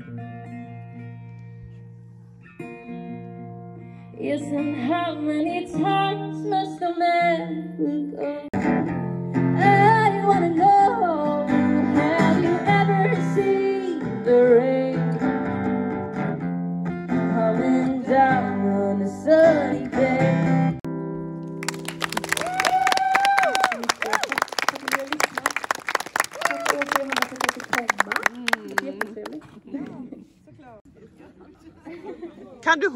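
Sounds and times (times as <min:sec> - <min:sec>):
woman singing: 0:04.2 - 0:08.6, 0:09.6 - 0:15.2, 0:17.2 - 0:20.8.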